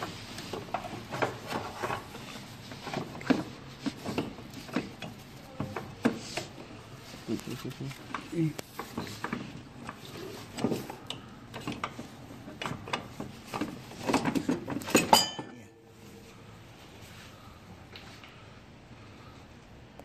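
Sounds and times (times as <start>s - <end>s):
metal tools clinking and knocking: 14.8s - 15.6s
sharp metallic clank: 15.0s - 15.6s.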